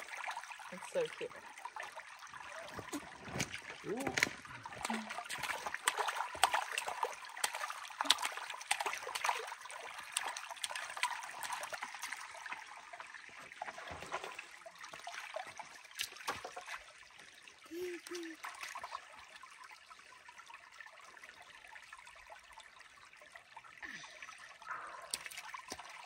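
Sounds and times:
creek trickling over rocks: 0.0s - 26.0s
child splashing in water: 2.4s - 12.2s, 13.8s - 16.9s, 17.7s - 19.1s, 23.8s - 26.0s.

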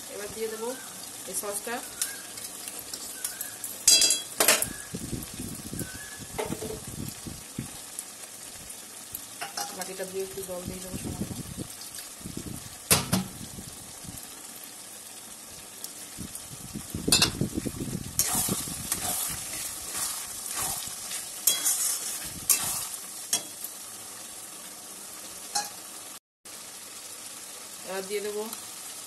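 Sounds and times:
food sizzling: 0.0s - 29.0s
spatula scraping in a wok: 18.2s - 23.7s.

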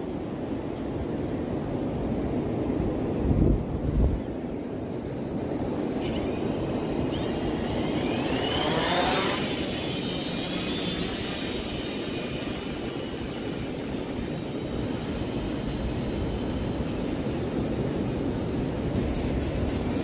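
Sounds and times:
drone propellers whining: 4.2s - 20.0s.

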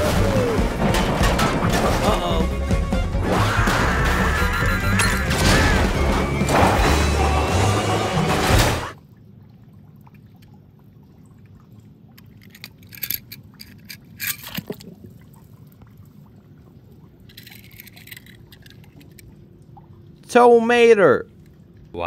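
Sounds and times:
toy cars clicking on concrete: 12.4s - 14.4s.

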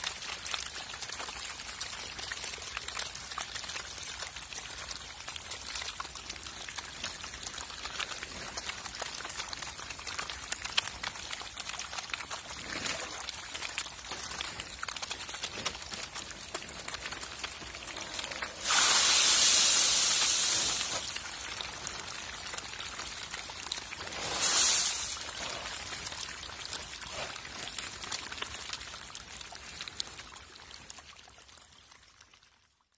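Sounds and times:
fish splashing at water surface: 7.5s - 29.1s
loud rushing hiss: 18.5s - 21.2s, 24.1s - 25.3s.

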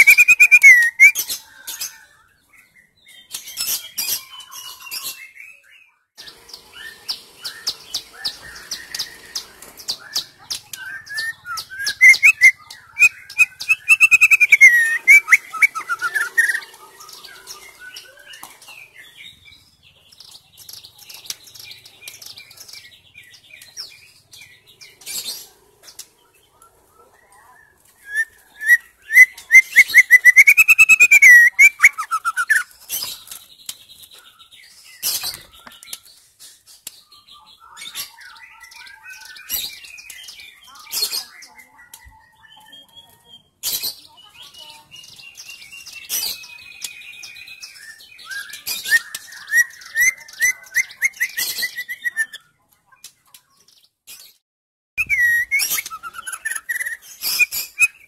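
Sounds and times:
bird singing whistled phrases: 0.0s - 2.2s, 10.0s - 18.4s, 28.0s - 32.7s, 44.2s - 52.4s, 55.0s - 58.0s.

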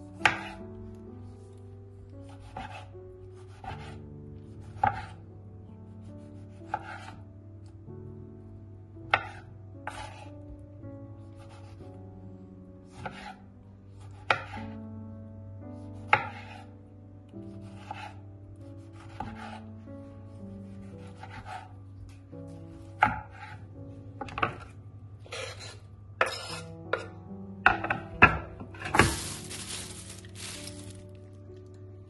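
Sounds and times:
background music: 0.0s - 32.0s
knife chopping on wooden board: 0.2s - 0.6s, 2.3s - 4.0s, 4.7s - 5.2s, 6.4s - 7.2s, 13.0s - 13.4s, 14.2s - 14.6s, 17.7s - 18.2s, 18.9s - 19.6s, 20.8s - 21.7s
knife scraping across board: 2.4s - 4.0s, 6.7s - 7.2s, 9.2s - 10.3s, 13.0s - 13.4s, 16.1s - 16.7s, 17.7s - 18.2s, 20.8s - 21.7s, 23.0s - 23.6s, 25.2s - 27.1s.

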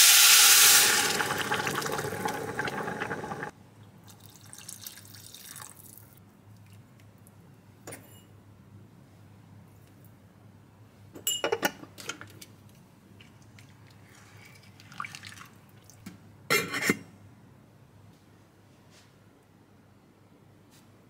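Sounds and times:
soup sloshing: 0.0s - 3.5s.

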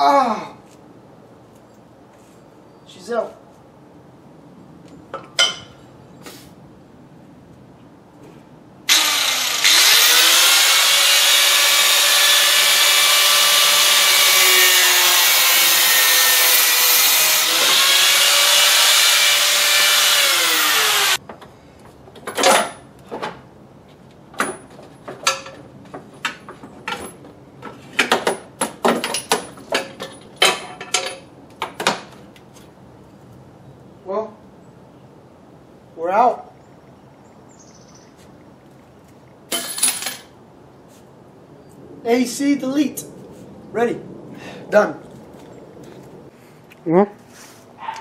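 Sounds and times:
power tool motor whine: 8.9s - 21.2s.

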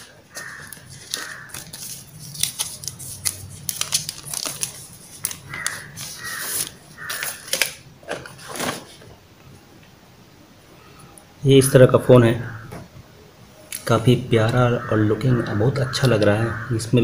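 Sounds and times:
plastic wrapping crinkling: 0.0s - 9.1s.

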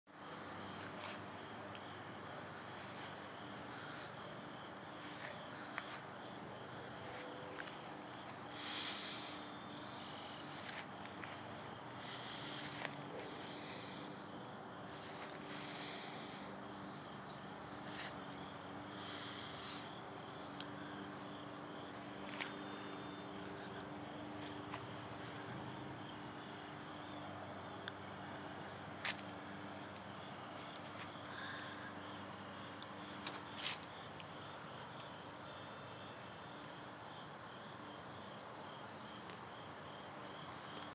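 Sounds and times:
insects trilling: 0.1s - 40.9s.

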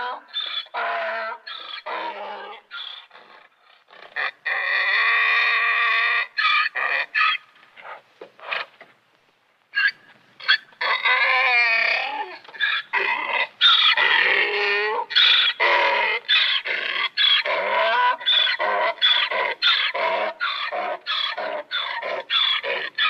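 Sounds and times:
wild ass braying: 9.8s - 23.0s.

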